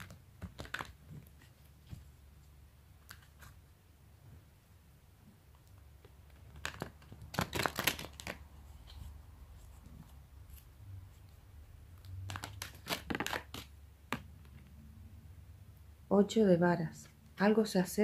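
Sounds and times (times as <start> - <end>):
cards being shuffled: 0.0 - 2.2, 3.0 - 3.6, 6.0 - 11.4, 12.0 - 14.7.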